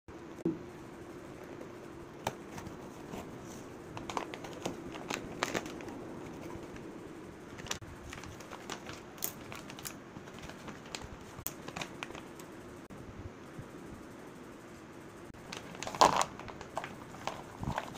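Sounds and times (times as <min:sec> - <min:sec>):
faint steady hum: 0:00.1 - 0:17.9
plastic bag and paper crinkling: 0:04.0 - 0:06.8, 0:07.5 - 0:12.4, 0:15.4 - 0:17.9.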